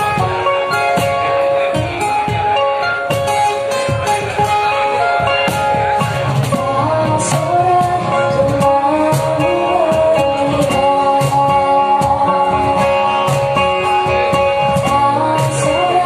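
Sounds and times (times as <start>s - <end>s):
cajon tapping a beat: 0.0s - 16.0s
strummed acoustic guitars: 0.0s - 16.0s
woman singing: 6.4s - 16.0s.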